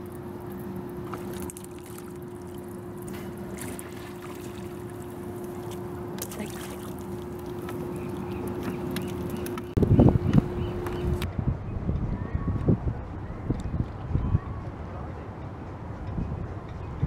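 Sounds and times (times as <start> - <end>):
engine humming: 0.0 - 11.3.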